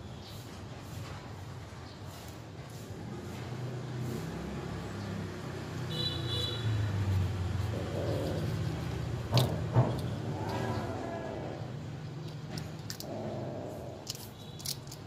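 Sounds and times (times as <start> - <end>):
low traffic rumble: 0.0 - 15.0
crunching clicks: 12.2 - 13.2, 14.0 - 15.0.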